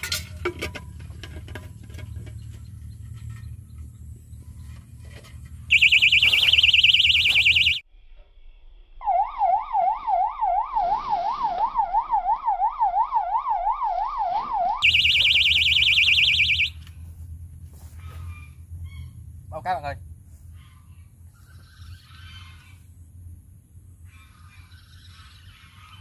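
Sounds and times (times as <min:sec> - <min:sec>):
electronic bite alarm warbling: 0:05.7 - 0:07.8, 0:09.0 - 0:16.8.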